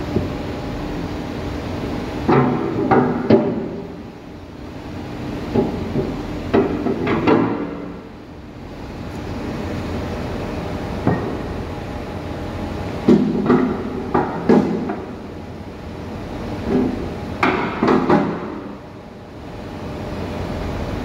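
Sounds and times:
steady machine hum: 0.0 - 21.0
metal clanks and knocks: 2.3 - 3.8, 5.5 - 7.9, 13.0 - 15.1.

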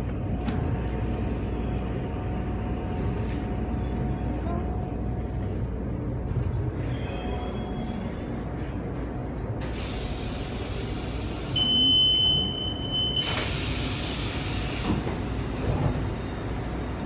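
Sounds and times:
train doors hissing open: 9.6 - 16.1.

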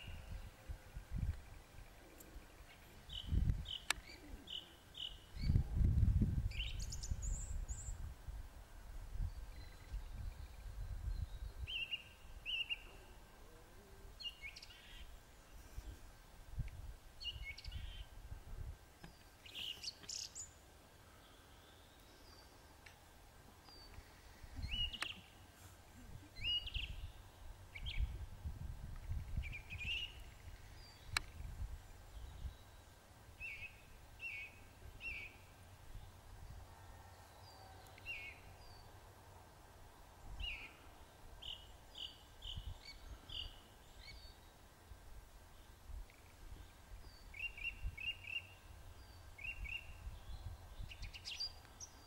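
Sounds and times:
songbirds chirping: 0.0 - 52.0.

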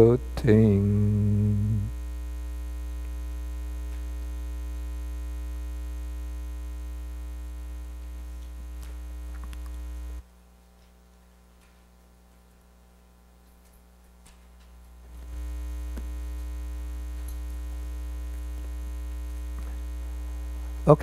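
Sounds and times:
electrical hum: 0.0 - 21.0
faint clicks: 8.3 - 9.8.

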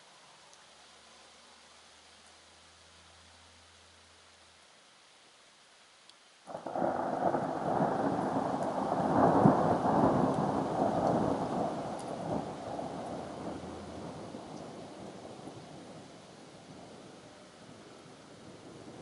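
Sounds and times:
faint hiss: 0.0 - 19.0
thunder rumbling: 6.5 - 19.0.

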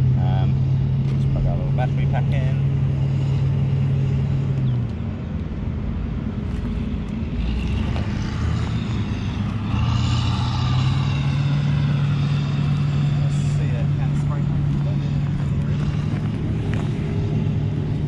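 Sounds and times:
steady low hum: 0.0 - 18.0
drone rotors whirring: 6.2 - 18.0.

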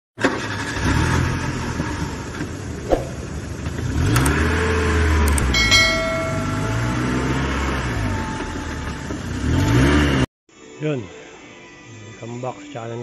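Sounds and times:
bell-like chime: 5.4 - 7.8.

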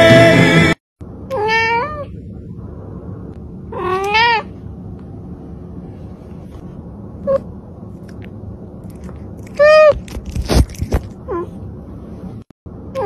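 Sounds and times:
cat meowing: 1.3 - 2.1, 3.7 - 4.5.

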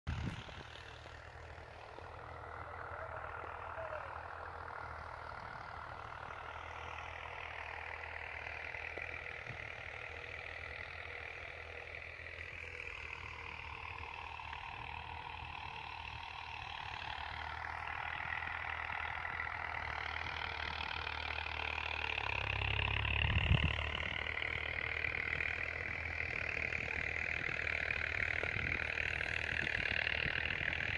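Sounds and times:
engine droning: 0.1 - 30.9.

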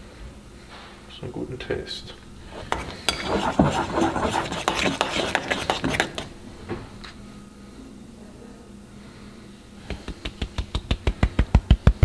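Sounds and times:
spoon clinking and scraping bowl: 2.5 - 6.3.

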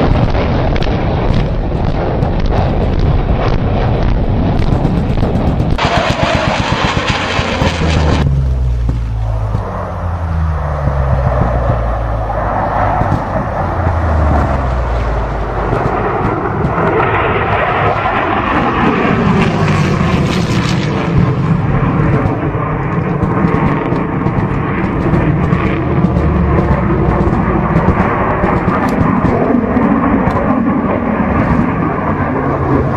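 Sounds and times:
fighter jet passing: 0.0 - 32.9.

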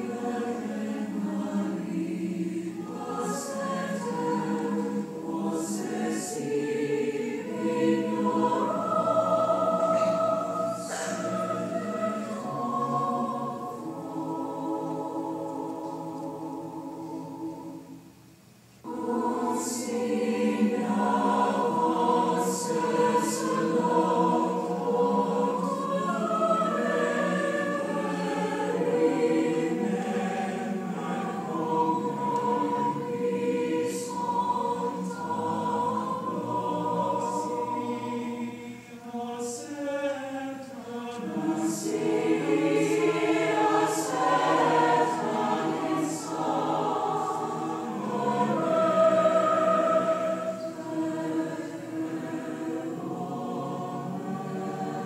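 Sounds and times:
choir singing sustained chords: 0.0 - 55.0.

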